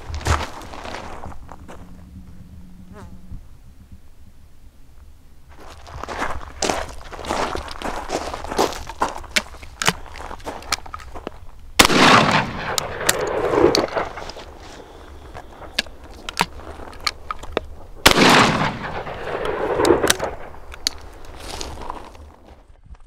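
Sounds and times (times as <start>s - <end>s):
shotgun action clicks: 11.8s - 14.6s, 15.5s - 21.4s
shotgun shots: 11.8s - 16.5s, 18.0s - 21.2s
rolling echo: 11.8s - 21.4s.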